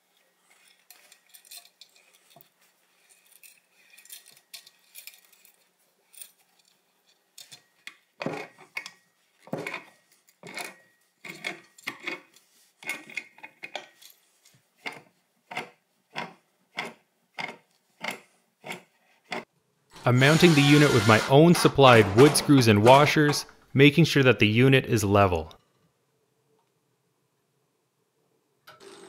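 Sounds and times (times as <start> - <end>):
metal pipe fittings handled: 0.4 - 15.6.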